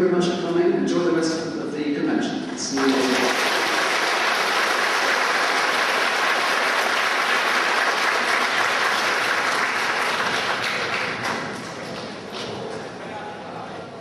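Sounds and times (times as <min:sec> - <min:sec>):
audience applauding: 0:02.8 - 0:12.2.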